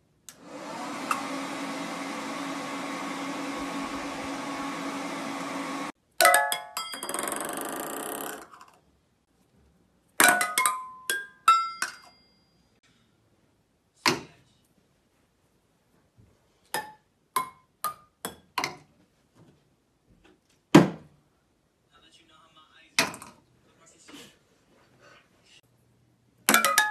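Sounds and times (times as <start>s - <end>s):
hair dryer blowing: 0.3s - 6.0s
ball pinging on metal pots: 6.2s - 8.4s, 10.2s - 12.2s, 26.5s - 26.9s.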